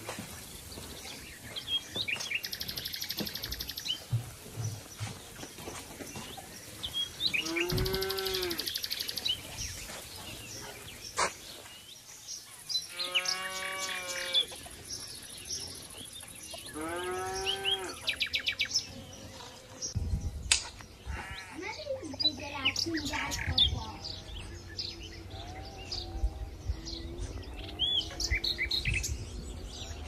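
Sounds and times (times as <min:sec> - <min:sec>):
birds chirping and trilling: 0:00.0 - 0:30.0
farm animal calling: 0:07.0 - 0:09.2, 0:12.8 - 0:14.8, 0:16.6 - 0:18.6, 0:21.0 - 0:29.0.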